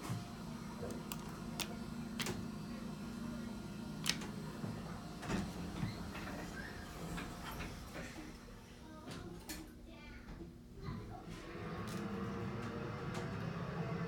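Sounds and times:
elevator humming: 0:00.0 - 0:07.8, 0:11.4 - 0:14.0.

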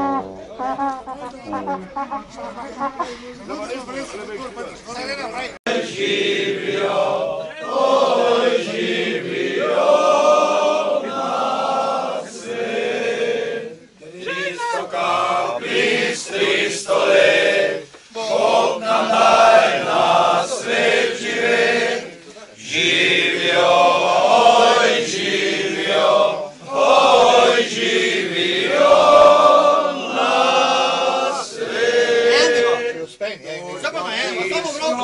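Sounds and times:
men singing in chorus: 0:14.9 - 0:22.1, 0:22.7 - 0:32.7.

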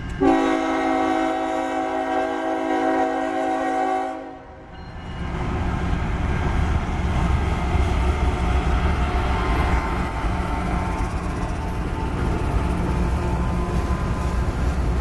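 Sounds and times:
locomotive engine and wheels rumbling: 0:00.0 - 0:15.0
locomotive air horn chord: 0:00.2 - 0:04.6.

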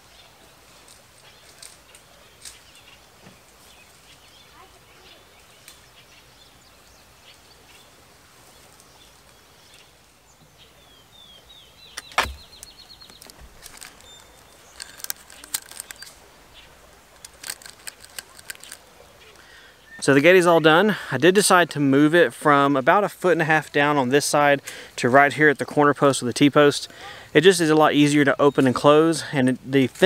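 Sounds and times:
faint outdoor background: 0:00.0 - 0:30.0
sharp knock: 0:12.0 - 0:12.5
plastic clicks and rattles: 0:12.0 - 0:16.2, 0:17.2 - 0:18.8.

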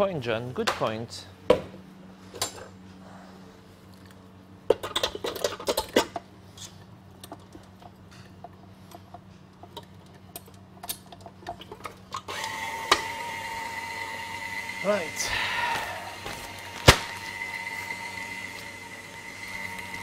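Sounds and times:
steady whine: 0:14.0 - 0:20.0.

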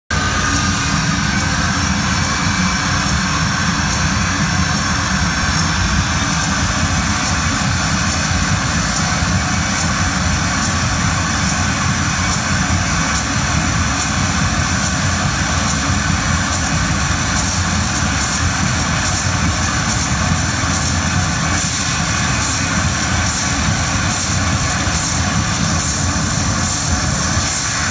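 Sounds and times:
harsh noise with low rumble: 0:00.1 - 0:27.9.

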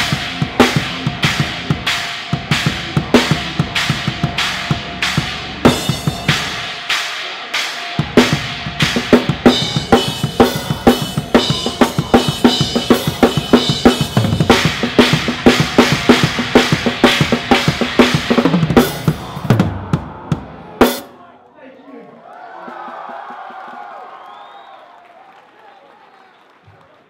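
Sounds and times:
rock drum kit played fast: 0:00.0 - 0:21.1.

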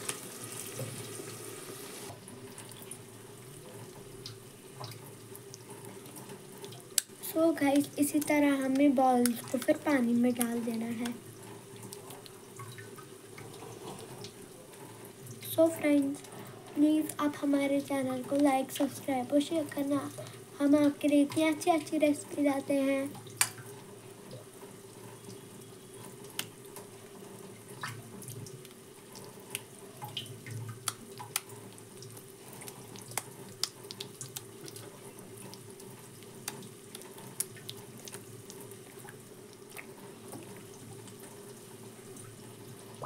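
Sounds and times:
faint water sounds: 0:00.0 - 0:43.0
light ticks and pops: 0:27.8 - 0:41.3.

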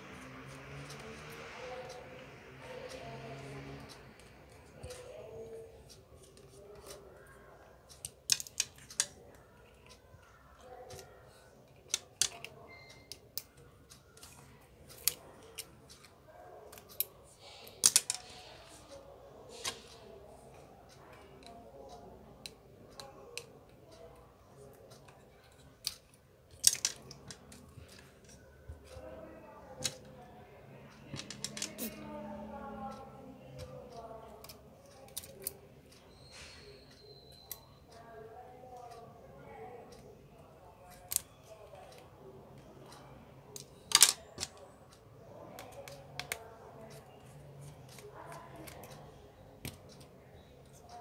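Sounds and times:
small tools clicking and tapping: 0:02.7 - 0:18.5, 0:21.0 - 0:30.2, 0:30.9 - 0:32.1, 0:32.8 - 0:37.8, 0:43.5 - 0:44.7, 0:45.3 - 0:51.0.

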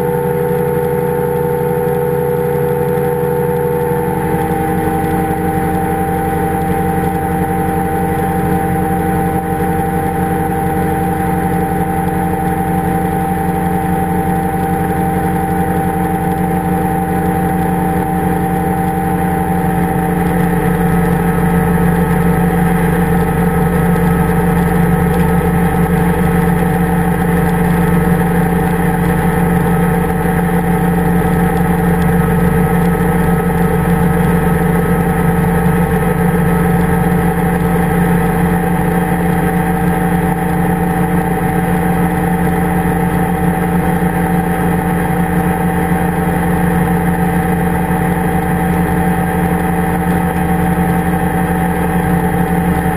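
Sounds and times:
engine and propeller drone: 0:00.0 - 0:52.9.

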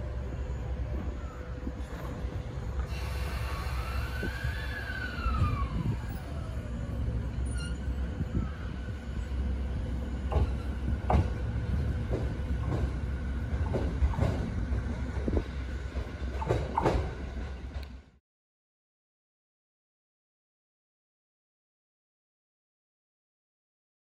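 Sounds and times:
wheels rumbling on rail: 0:00.0 - 0:18.2
electric train motor whine: 0:00.2 - 0:10.6
wheel squeals and clicks: 0:07.4 - 0:08.0.

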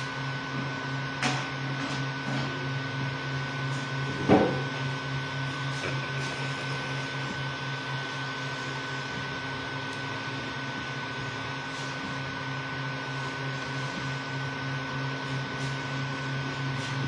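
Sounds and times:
printer motors and fans humming: 0:00.0 - 0:17.0.

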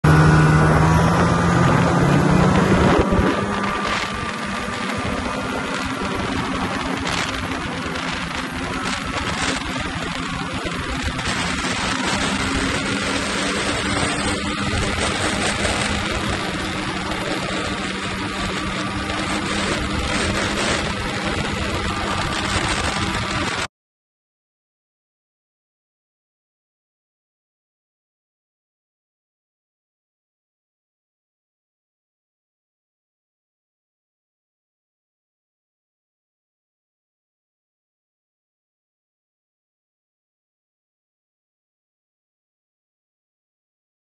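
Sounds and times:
constant rushing noise: 0:00.0 - 0:23.7
snowmobile engine running: 0:00.0 - 0:23.7
track and wind noise: 0:00.0 - 0:23.7.

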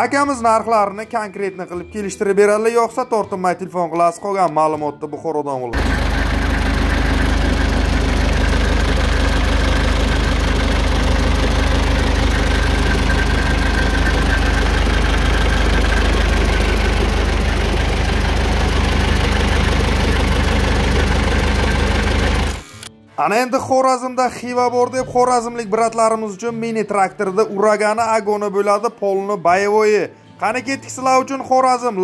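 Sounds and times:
diesel engine idling: 0:05.8 - 0:22.6.

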